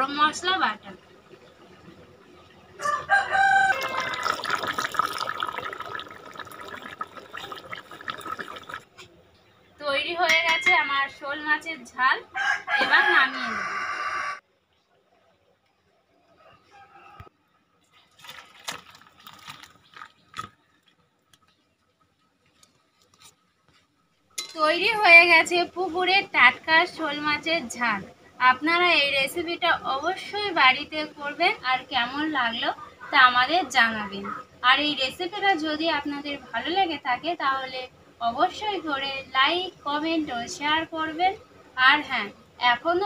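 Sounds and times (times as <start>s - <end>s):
rooster crowing: 2.8s - 4.5s, 12.3s - 14.4s, 16.4s - 17.3s
curry bubbling in a pan: 3.7s - 8.9s.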